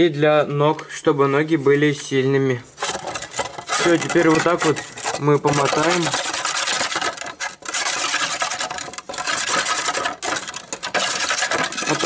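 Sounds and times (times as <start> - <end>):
wet scrubbing and sloshing: 2.8 - 12.0.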